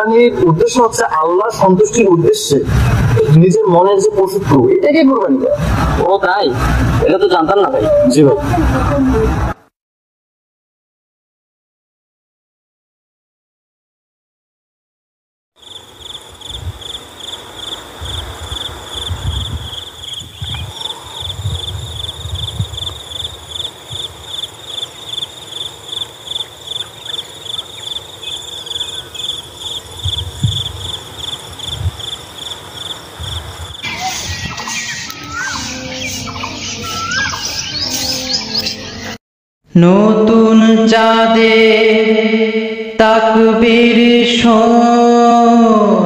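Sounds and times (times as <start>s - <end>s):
crickets chirping: 15.6s - 38.5s
birds chirping: 15.6s - 39.2s
low thumps and rumbles: 30.0s - 30.9s.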